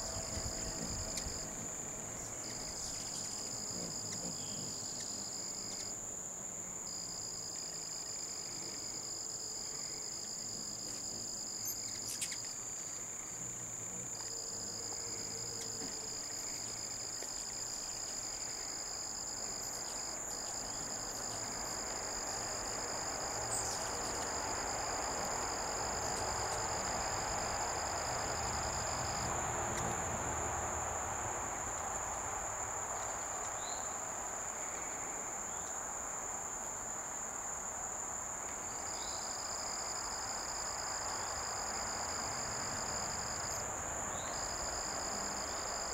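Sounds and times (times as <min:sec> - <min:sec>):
insect chorus trilling: 0:00.0 - 0:45.9
soft outdoor hiss: 0:00.0 - 0:45.9.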